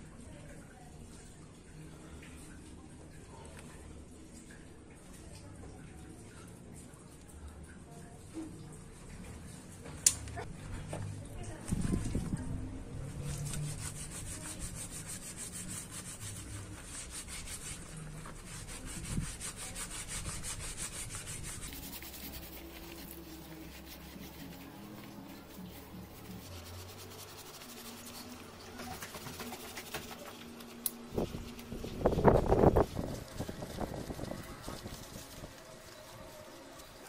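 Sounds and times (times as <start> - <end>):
sponge scrubbing metal: 13.1 - 37.0.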